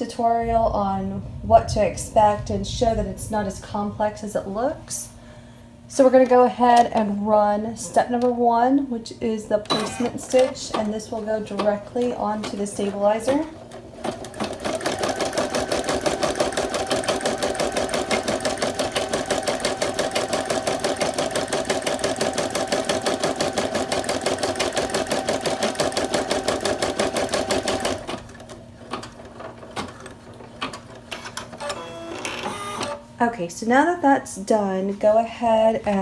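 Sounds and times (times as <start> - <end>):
embroidery machine stitching: 9.7 - 10.9, 14.0 - 30.0.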